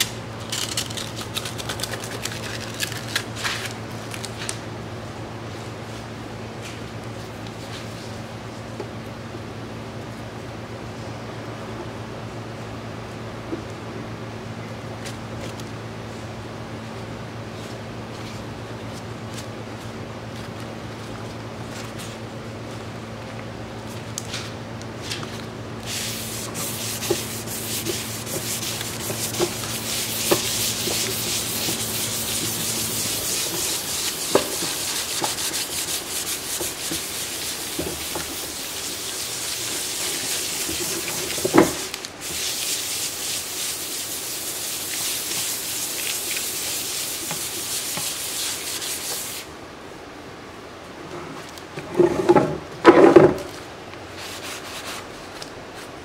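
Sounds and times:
sanding sponge scrubbing resin: 0:25.8 - 0:49.5, 0:54.2 - 0:55.1.

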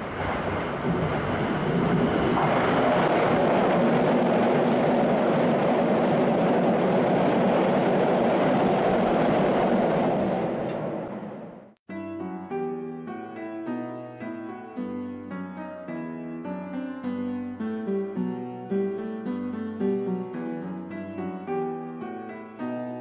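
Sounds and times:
electric train passing: 0:00.0 - 0:11.8.

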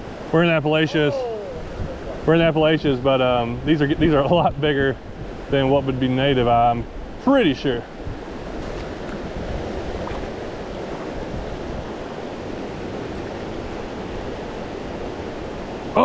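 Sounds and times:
creek rushing over rocks: 0:05.6 - 0:16.0.

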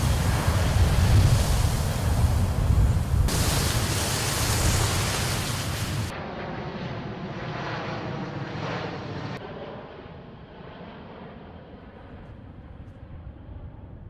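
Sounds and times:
wind buffeting microphone: 0:00.0 - 0:06.1
distant jet engines droning: 0:00.0 - 0:14.0.

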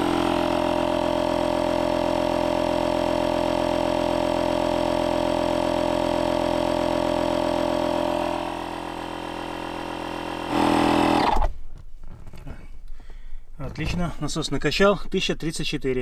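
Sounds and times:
electric air pump droning: 0:00.0 - 0:11.5.

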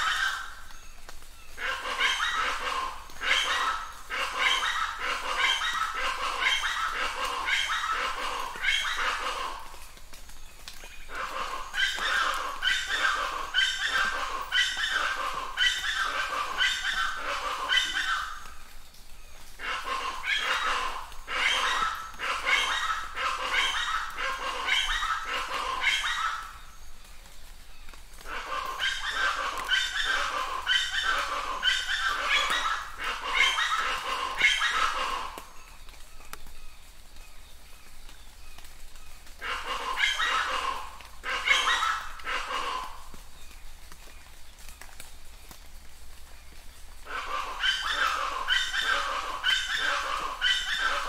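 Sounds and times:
animal calling: 0:00.0 - 0:00.8, 0:01.5 - 0:09.9, 0:10.8 - 0:18.6, 0:19.6 - 0:26.8, 0:28.2 - 0:35.6, 0:39.3 - 0:43.2, 0:47.0 - 0:51.0.

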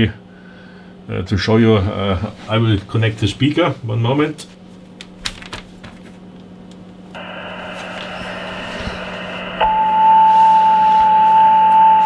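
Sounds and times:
low hum: 0:07.1 - 0:12.0
radio receiver hiss: 0:07.2 - 0:12.0.

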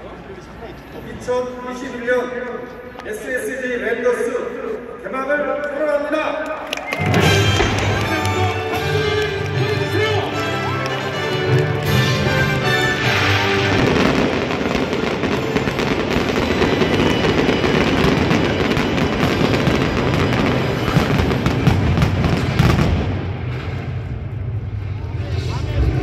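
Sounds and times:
music playing: 0:07.0 - 0:20.7
fireworks bangs and crackles: 0:07.0 - 0:26.0.

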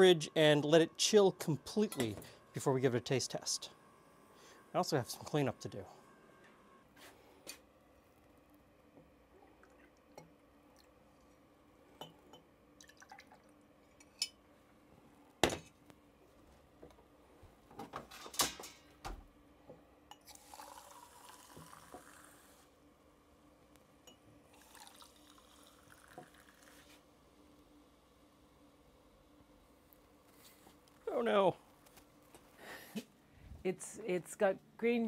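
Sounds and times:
liquid pouring into a glass: 0:12.8 - 0:13.6, 0:20.2 - 0:22.5, 0:24.5 - 0:27.0.

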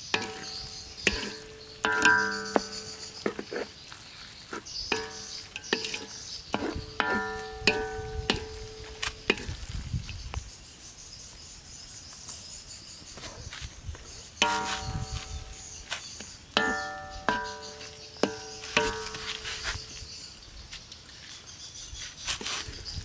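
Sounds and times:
wok ringing tone: 0:00.0 - 0:03.3, 0:04.9 - 0:09.5, 0:14.4 - 0:15.8, 0:16.5 - 0:20.0
wooden ladle knocking metal wok: 0:00.0 - 0:03.7, 0:04.9 - 0:09.7, 0:14.4 - 0:20.0.

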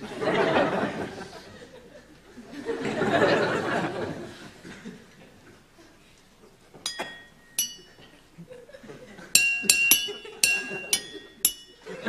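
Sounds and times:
studio audience laughter: 0:00.0 - 0:05.2
ringing clinks of tableware: 0:06.9 - 0:08.2, 0:09.4 - 0:12.0.

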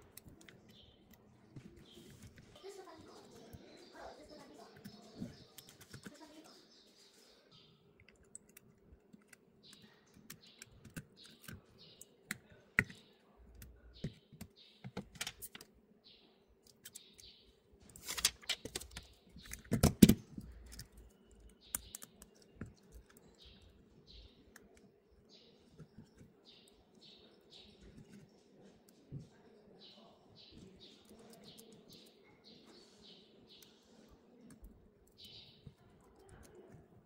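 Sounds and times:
phone parts clicking and tapping: 0:18.0 - 0:23.6.

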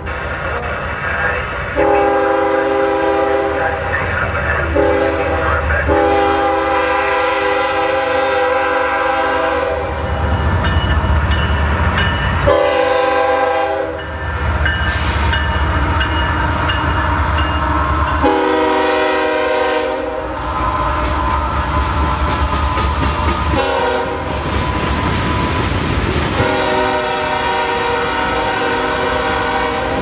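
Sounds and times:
low rumble of rolling train: 0:00.0 - 0:30.0
locomotive air horn: 0:01.8 - 0:03.8, 0:04.7 - 0:10.0, 0:12.5 - 0:14.0, 0:18.2 - 0:20.4, 0:23.5 - 0:24.3, 0:26.4 - 0:30.0.

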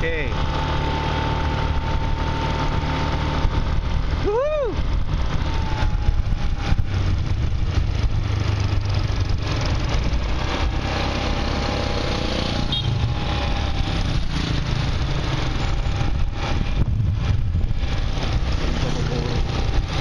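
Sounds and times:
motorcycle engine running: 0:00.0 - 0:20.0
wind and road noise: 0:00.0 - 0:20.0.

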